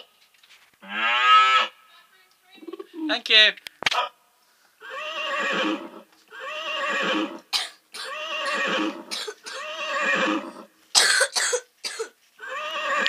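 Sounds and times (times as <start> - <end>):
wavering whinny-like cry: 4.8 - 7.4, 8.1 - 10.7, 12.4 - 13.0.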